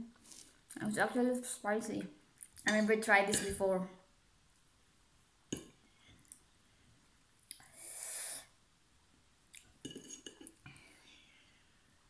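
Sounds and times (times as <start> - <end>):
loud airy breath intake: 7.7 - 8.5.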